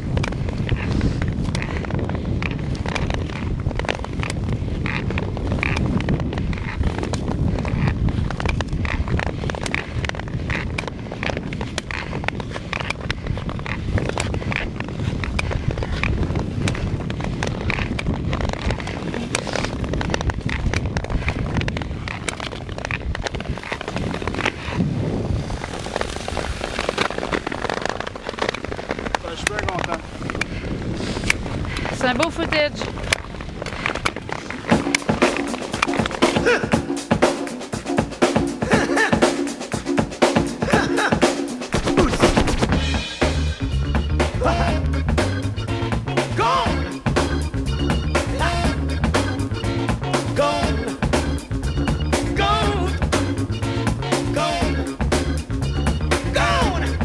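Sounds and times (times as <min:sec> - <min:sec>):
wind buffeting microphone: 0:00.0 - 0:37.0, 0:39.8 - 0:54.1
skate blades crackling on ice: 0:00.0 - 0:45.4.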